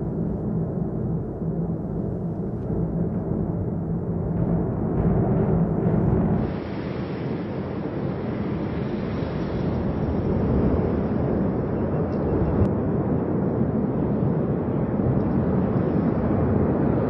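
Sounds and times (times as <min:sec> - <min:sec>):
music: 0:00.0 - 0:06.7
volcano rumbling: 0:00.0 - 0:17.0.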